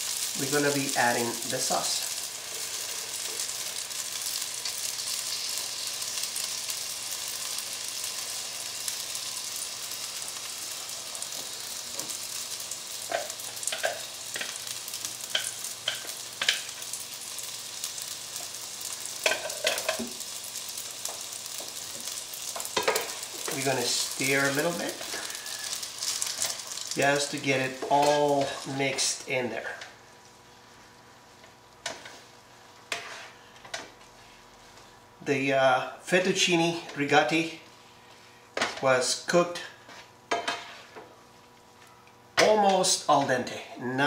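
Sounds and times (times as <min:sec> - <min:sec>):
electric skillet sizzling: 0:00.0 - 0:43.6.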